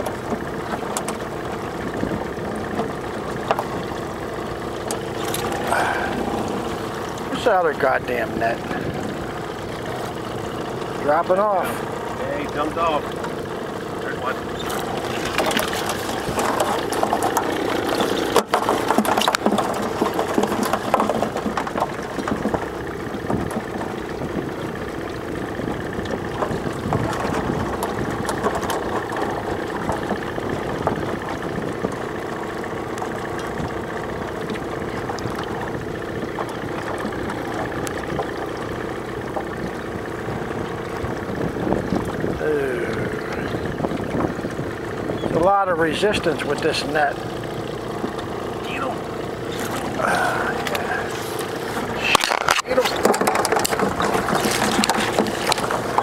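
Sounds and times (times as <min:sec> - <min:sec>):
outboard motor running: 0:00.0 - 0:56.0
knocks and clatter: 0:14.5 - 0:42.4, 0:43.3 - 0:56.0.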